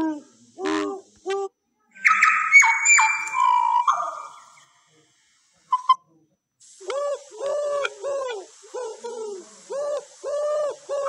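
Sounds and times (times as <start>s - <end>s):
faint recording hiss: 0.0s - 11.0s
recorded pigeon cooing: 2.0s - 4.6s, 6.9s - 11.0s
loud double chirp: 2.0s - 4.8s.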